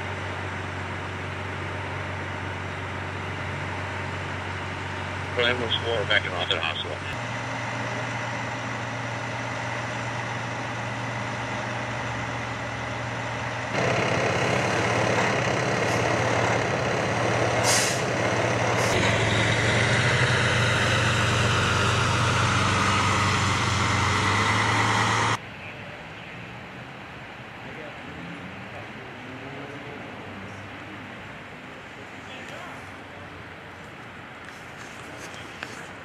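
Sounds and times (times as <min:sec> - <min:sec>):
diesel engine idling: 0:00.0 - 0:25.4.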